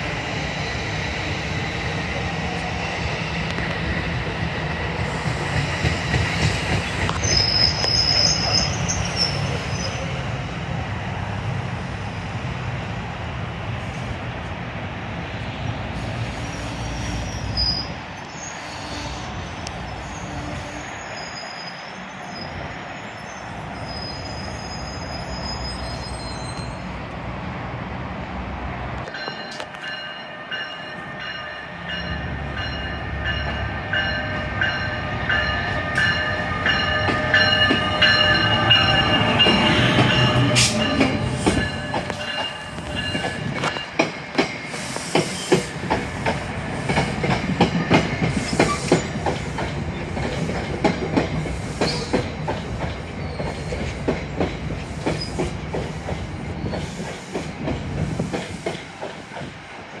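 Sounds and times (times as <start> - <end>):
train low rumble: 0.0 - 22.9, 26.4 - 60.0
train wheels clicking over rail joints: 3.4 - 9.7, 36.0 - 60.0
train whining tones: 15.6 - 27.2, 29.0 - 60.0.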